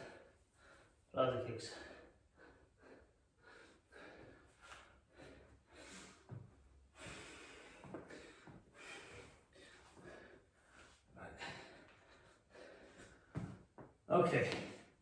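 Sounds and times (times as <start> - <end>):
man breathing hard: 0.0 - 13.8.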